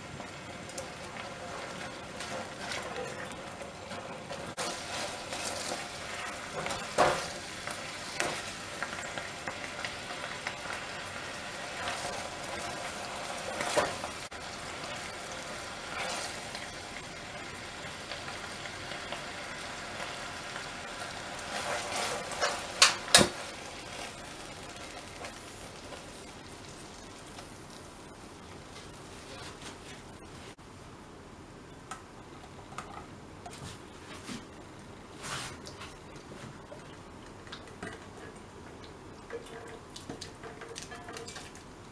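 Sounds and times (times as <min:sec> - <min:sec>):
syrup bubbling and sizzling: 0:00.0 - 0:30.6, 0:35.0 - 0:41.9
spatula stirring and scraping: 0:01.1 - 0:09.6, 0:20.9 - 0:26.3.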